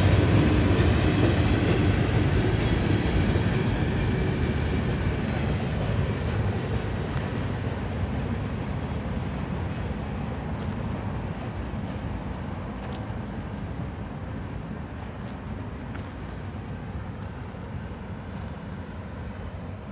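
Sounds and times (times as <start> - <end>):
freight train rumbling on rails: 0.0 - 19.9.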